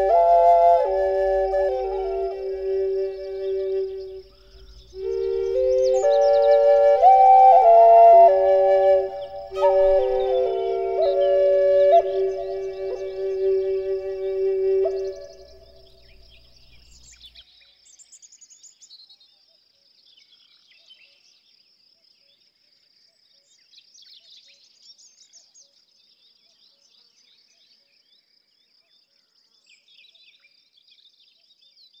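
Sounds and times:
flute note: 0.0s - 15.8s
bird chirps: 0.0s - 19.2s.

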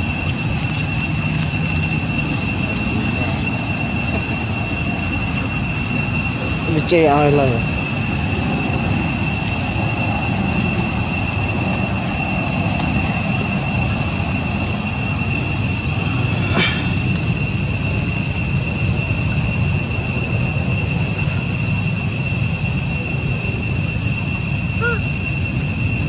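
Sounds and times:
high-pitched whine: 0.0s - 26.0s.

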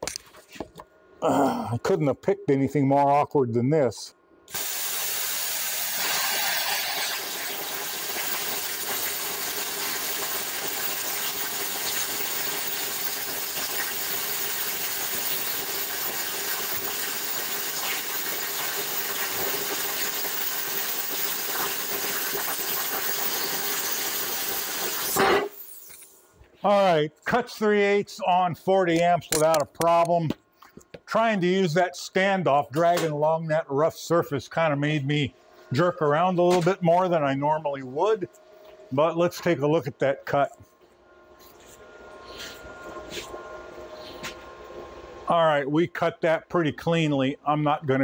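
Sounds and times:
plasma cutter hissing: 4.5s - 26.2s.

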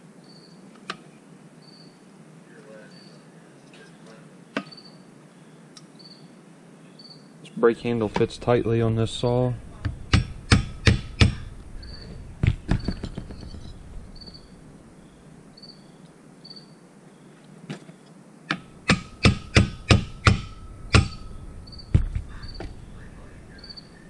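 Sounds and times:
small hammer tapping: 10.1s - 11.5s.

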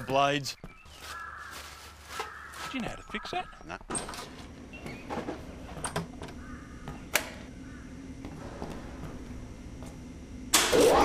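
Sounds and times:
low steady hum: 4.0s - 11.0s.

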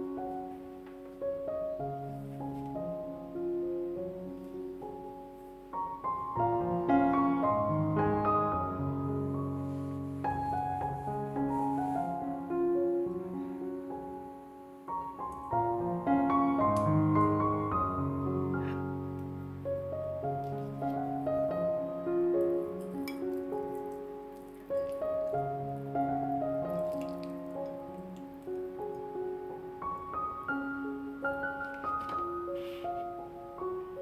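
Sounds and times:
gentle piano music: 0.0s - 34.0s.

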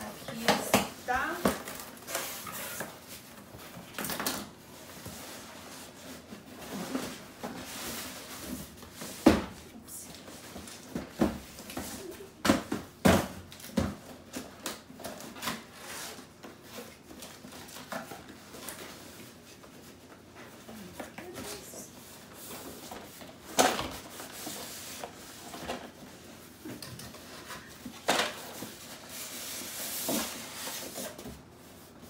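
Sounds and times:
knocks and thumps on boxes: 10.6s - 14.2s.

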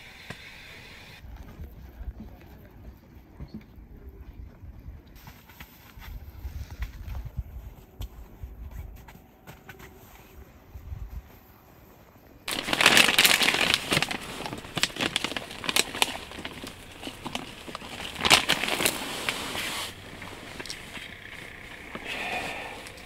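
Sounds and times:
plastic bag crinkling: 12.5s - 23.0s.

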